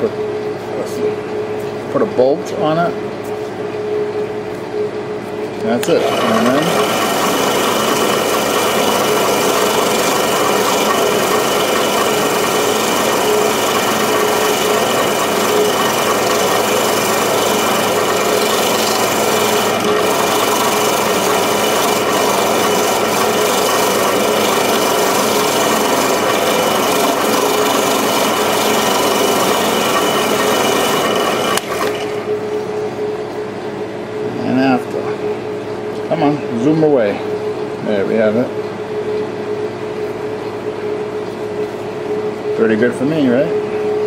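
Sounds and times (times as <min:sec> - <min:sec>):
drill press hum: 0:05.6 - 0:32.6
wire wheel scratching metal: 0:05.9 - 0:32.1.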